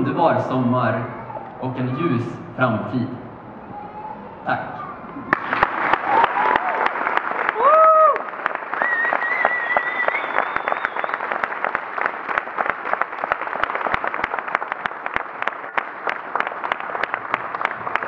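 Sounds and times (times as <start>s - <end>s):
audience applauding: 5.2s - 18.0s.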